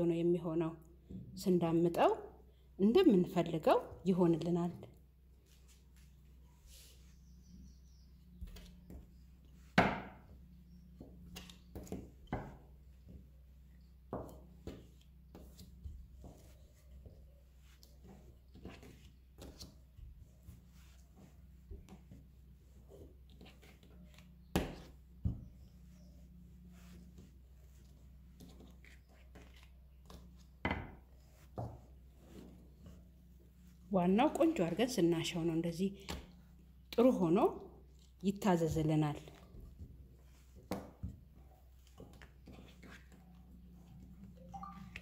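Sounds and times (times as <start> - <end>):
rolling pin knocking on table: 9.8 - 10.2
rolling pin rubbing on dough: 10.4 - 34.6.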